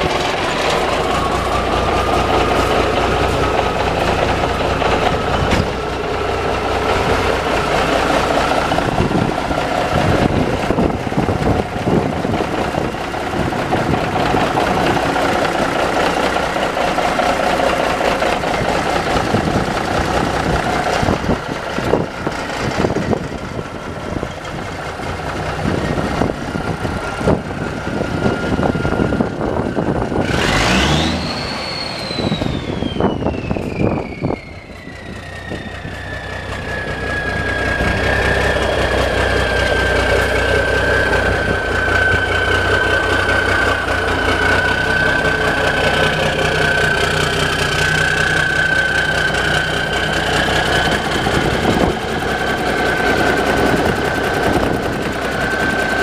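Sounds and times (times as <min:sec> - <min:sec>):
diesel engine idling: 0:00.0 - 0:56.0
turbo whistle: 0:31.2 - 0:38.7.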